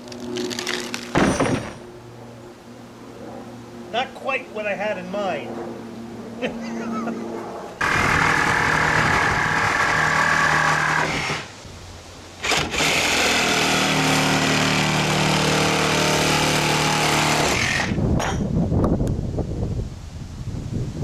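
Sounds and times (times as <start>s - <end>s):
power tool cutting metal: 7.8s - 11.5s, 12.4s - 18.0s.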